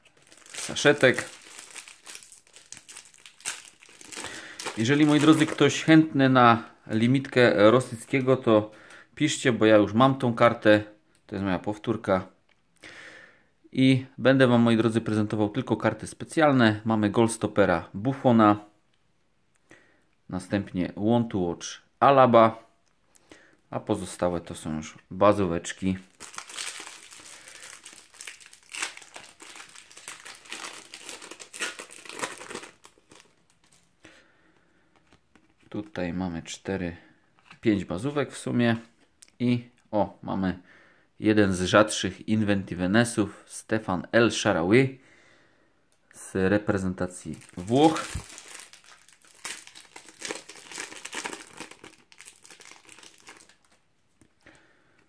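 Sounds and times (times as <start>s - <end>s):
foil packet torn and crinkled: 0.0s - 5.7s, 26.1s - 33.8s, 47.4s - 53.8s
handling of cards: 0.0s - 5.8s, 26.1s - 33.9s, 47.3s - 54.4s.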